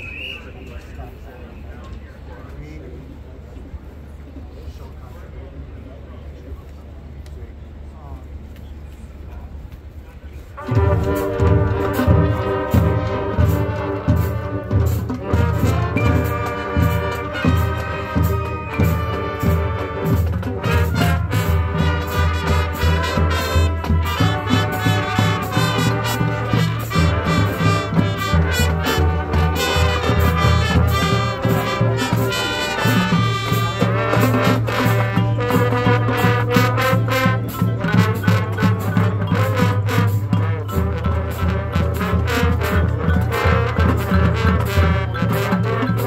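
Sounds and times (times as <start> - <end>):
marching band brass: 0.0 - 2.3, 10.4 - 46.0
steady drum beat: 10.6 - 46.0.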